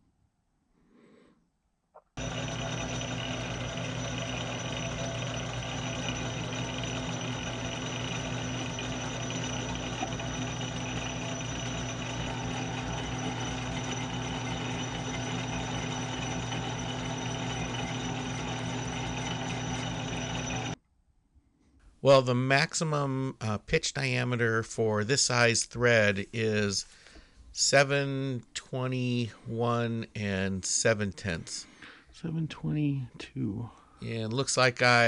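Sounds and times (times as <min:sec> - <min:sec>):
metal lathe humming and whining: 0:02.2 - 0:20.8.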